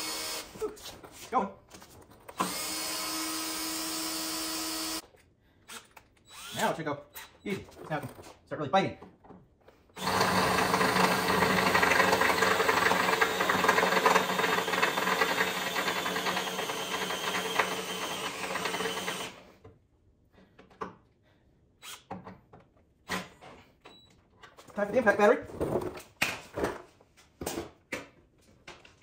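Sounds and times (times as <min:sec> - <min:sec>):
cordless drill boring into metal: 0:00.0 - 0:00.5, 0:02.4 - 0:05.0, 0:05.7 - 0:07.3, 0:10.0 - 0:19.4.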